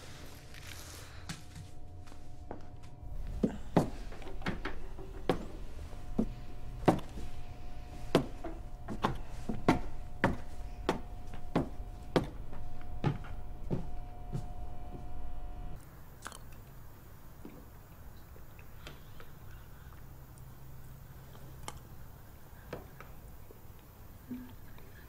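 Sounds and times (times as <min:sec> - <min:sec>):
steady hum: 0:00.0 - 0:25.0
footsteps on wooden stairs: 0:01.2 - 0:15.8.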